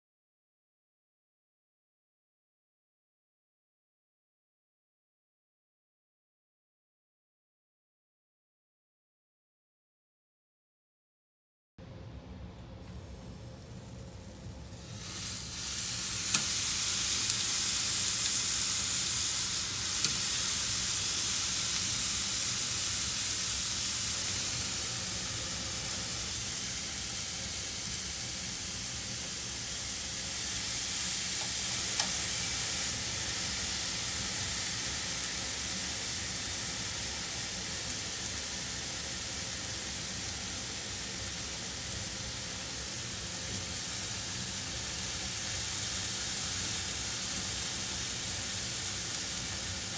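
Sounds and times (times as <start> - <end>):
meat sizzling on a grill: 13.0 - 49.9.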